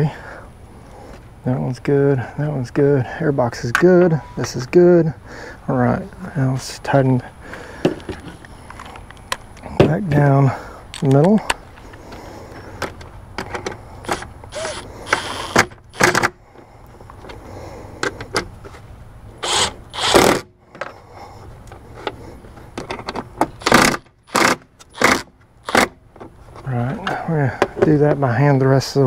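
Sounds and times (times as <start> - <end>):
impact driver bursts: 14.0 - 16.3, 19.4 - 20.5, 23.6 - 26.0.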